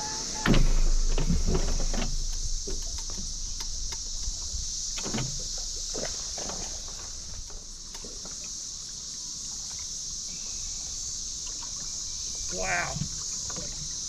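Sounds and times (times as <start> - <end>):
wind rumbling on microphone: 0.0 - 8.0
waves knocking against boat hull: 0.0 - 8.5
insects droning: 0.0 - 14.0.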